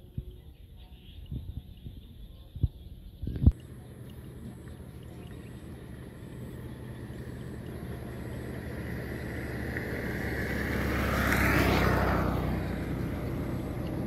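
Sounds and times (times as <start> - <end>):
vehicle passing by: 4.1 - 14.0.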